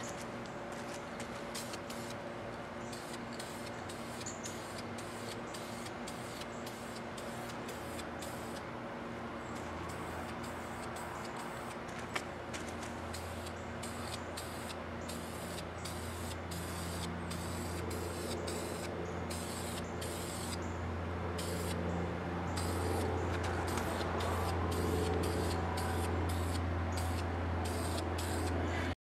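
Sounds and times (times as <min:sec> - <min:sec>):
steady low hum: 0:00.0 - 0:29.0
spray can hissing: 0:01.5 - 0:02.2, 0:02.9 - 0:08.7, 0:13.1 - 0:20.6, 0:21.4 - 0:21.8, 0:22.6 - 0:28.6.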